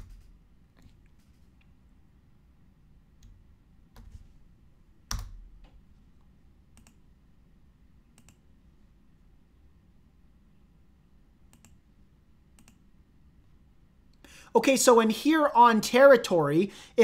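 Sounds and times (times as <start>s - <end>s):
keyboard keystrokes: 5.1s - 5.8s
mouse clicks: 6.7s - 7.0s, 8.1s - 8.5s, 11.5s - 11.8s, 12.6s - 12.8s.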